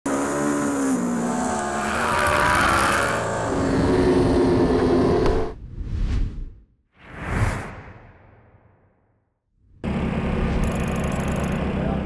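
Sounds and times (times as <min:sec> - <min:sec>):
racing motorcycle engines: 0:00.1 - 0:05.5.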